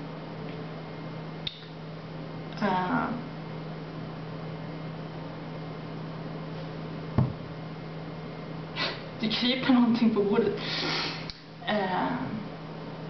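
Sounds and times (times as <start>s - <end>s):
room tone hum and hiss: 0.0s - 13.0s
sharp thump: 7.2s - 7.4s.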